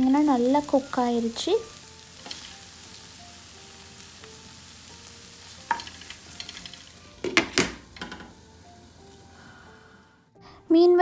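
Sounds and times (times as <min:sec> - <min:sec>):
okra sizzling in a pan: 0:00.0 - 0:10.3
spatula knocking against pan: 0:07.2 - 0:08.4.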